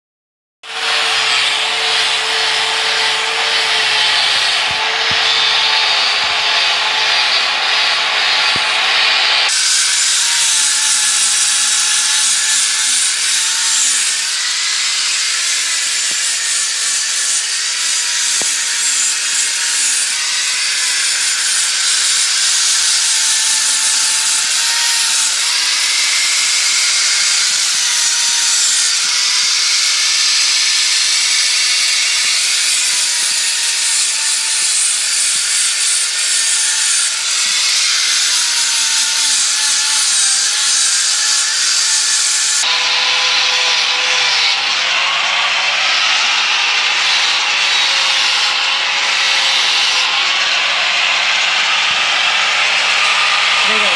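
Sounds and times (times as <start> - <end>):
angle grinder grinding steel: 0.6 - 53.9.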